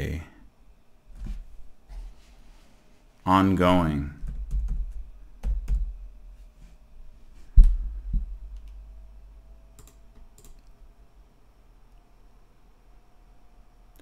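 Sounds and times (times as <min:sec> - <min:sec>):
computer keyboard keystrokes: 0:09.8 - 0:10.7.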